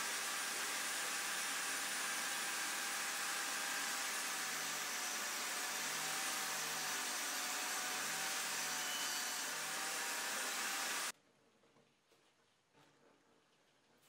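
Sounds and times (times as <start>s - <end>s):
table saw ripping a board: 0.0s - 11.1s.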